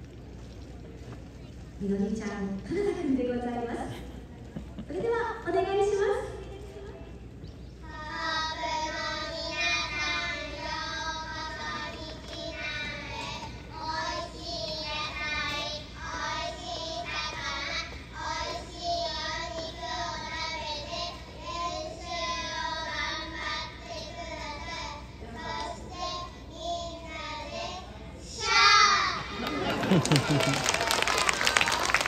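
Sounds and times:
children singing into microphones: 0:07.8 - 0:29.4.

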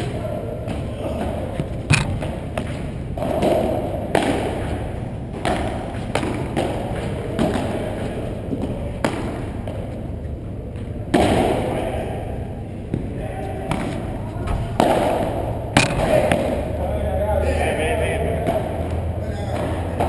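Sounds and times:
ball bouncing off court and walls: 0:00.0 - 0:10.0, 0:12.9 - 0:16.8
padel rackets hitting ball: 0:00.0 - 0:10.0, 0:12.9 - 0:16.8, 0:18.4 - 0:20.0.

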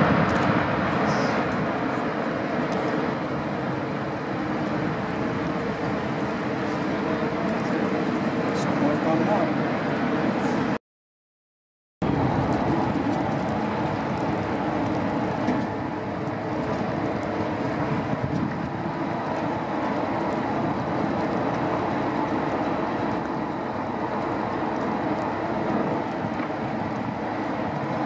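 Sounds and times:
wind on microphone: 0:00.0 - 0:07.4, 0:12.0 - 0:28.0
boat engine: 0:00.0 - 0:10.8, 0:12.0 - 0:28.0.

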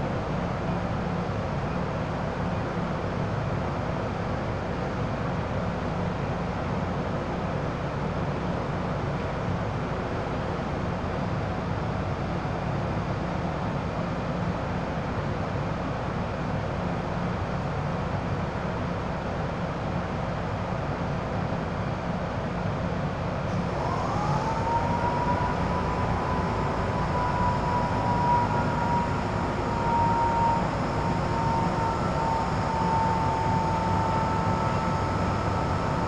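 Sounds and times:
train car equipment hum: 0:00.0 - 0:36.0
low drone: 0:23.5 - 0:36.0.

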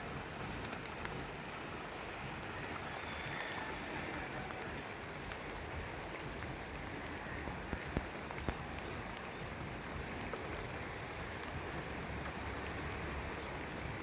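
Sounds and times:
rain hiss: 0:00.0 - 0:14.0.

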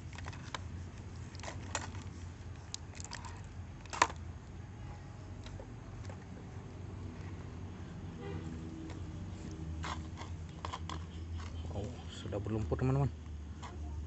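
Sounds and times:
plastic toy clicks and knocks: 0:03.1 - 0:04.2, 0:09.8 - 0:11.6.

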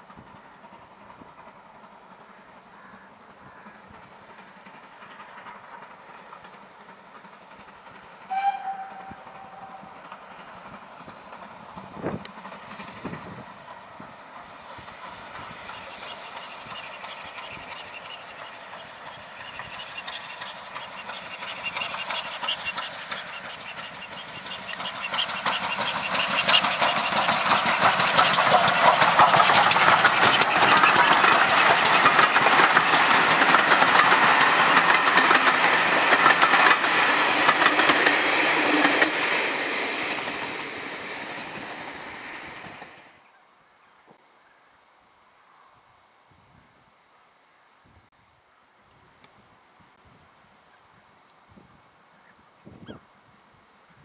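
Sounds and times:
steam locomotive exhaust: 0:00.0 - 0:43.0
train wheels rattling: 0:00.0 - 0:43.2.

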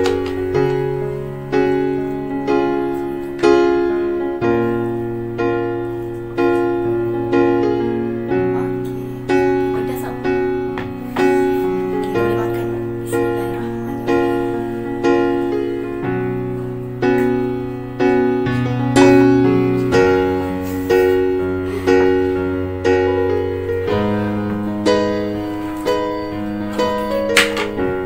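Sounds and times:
slow piano chords: 0:00.0 - 0:28.0.

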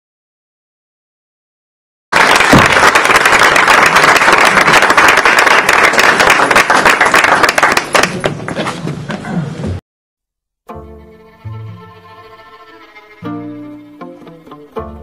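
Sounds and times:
audience applauding: 0:02.1 - 0:08.6.

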